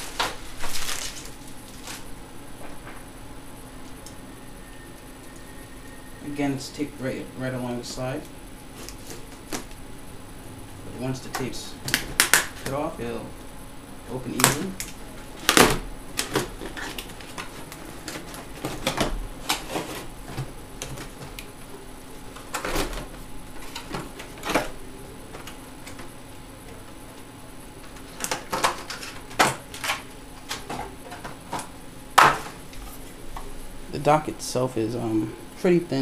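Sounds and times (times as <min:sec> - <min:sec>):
cardboard packaging handled: 0:00.0 - 0:02.1, 0:15.4 - 0:21.5.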